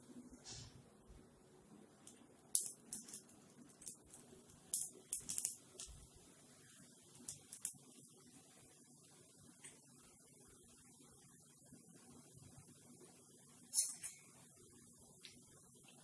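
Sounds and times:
dough frying in oil: 0:00.0 - 0:16.0
oil crackling and popping: 0:02.1 - 0:06.1, 0:07.1 - 0:08.1.

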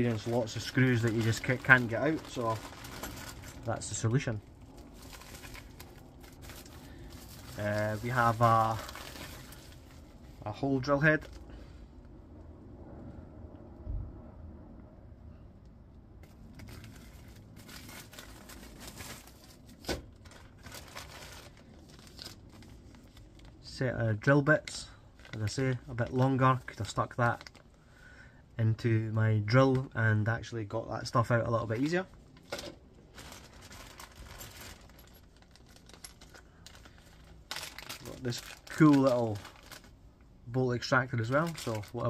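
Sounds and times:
plastic packaging crinkling: 0:00.0 - 0:10.5, 0:16.3 - 0:23.7, 0:25.1 - 0:27.8, 0:31.8 - 0:40.0, 0:40.9 - 0:42.0
plastic bag rustling: 0:00.0 - 0:11.4, 0:16.2 - 0:23.7, 0:25.1 - 0:27.8, 0:31.7 - 0:40.1, 0:40.9 - 0:42.0.

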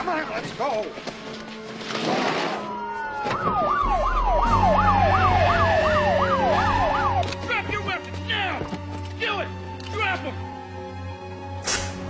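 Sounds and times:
police siren falling wail: 0:02.6 - 0:07.3
police siren yelping: 0:02.6 - 0:07.4.

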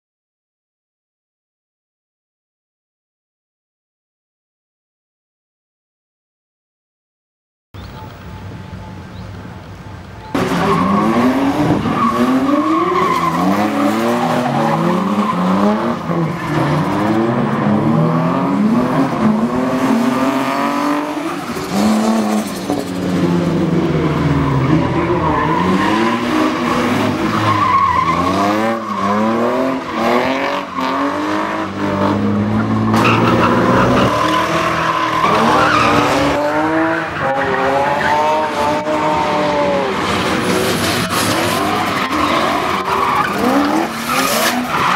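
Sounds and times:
car engines revving: 0:07.8 - 0:44.9
tyre squeal: 0:32.6 - 0:36.4.

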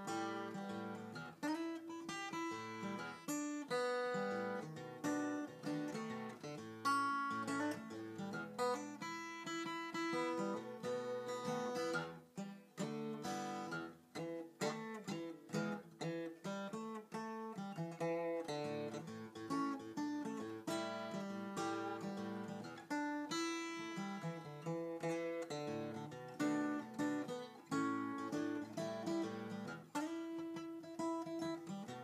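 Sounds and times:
fingerstyle acoustic guitar: 0:00.0 - 0:32.0.

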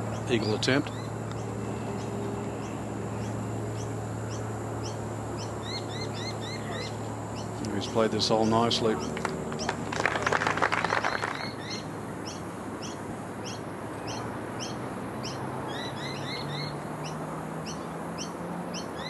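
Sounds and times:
bird chirping: 0:00.0 - 0:09.8, 0:10.8 - 0:19.0
outdoor background noise: 0:00.0 - 0:19.0
spectators applauding: 0:09.0 - 0:11.7.

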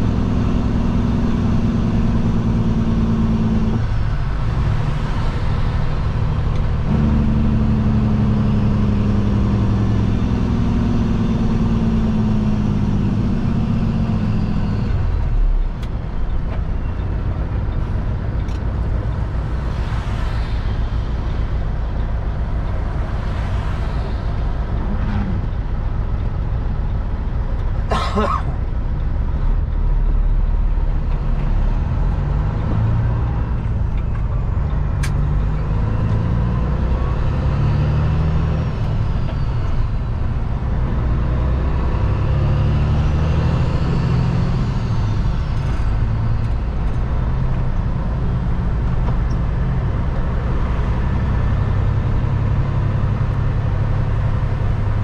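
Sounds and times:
truck diesel engine: 0:00.0 - 0:55.0.

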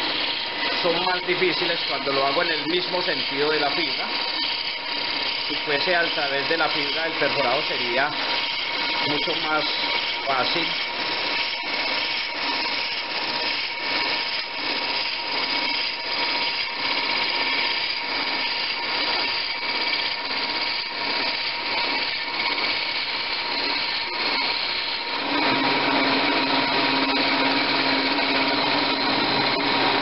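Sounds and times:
drill bit boring into wood: 0:00.0 - 0:30.0
wood lathe whine: 0:00.0 - 0:30.0.

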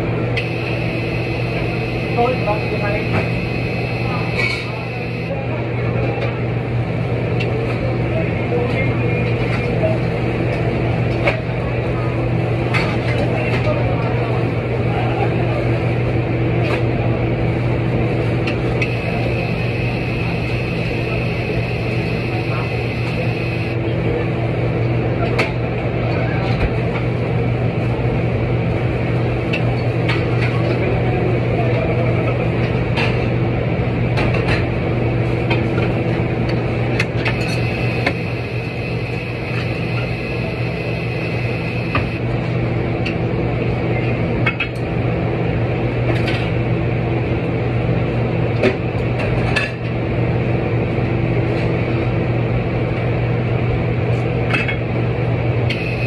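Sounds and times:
machine hum: 0:00.0 - 0:05.7, 0:17.5 - 0:24.1, 0:35.0 - 0:44.0, 0:55.3 - 0:56.0.

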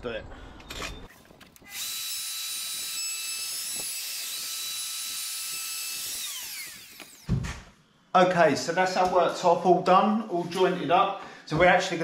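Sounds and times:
router whining and winding down: 0:01.5 - 0:07.4.

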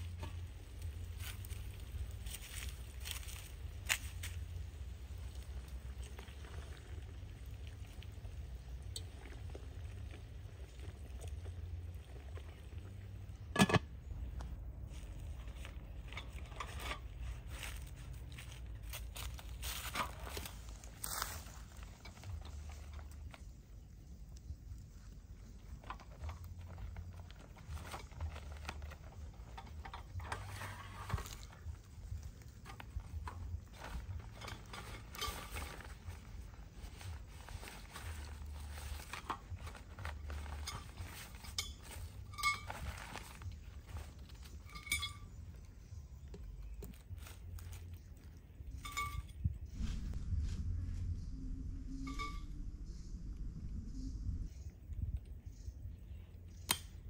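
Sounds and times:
metal lid clank: 0:13.5 - 0:13.9
sack rustling and crinkling: 0:30.3 - 0:44.8
low steady rumble: 0:47.6 - 0:57.0.

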